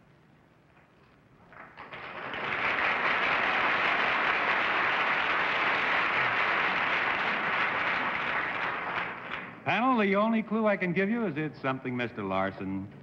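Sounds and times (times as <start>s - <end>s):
audience applauding: 1.5s - 9.6s.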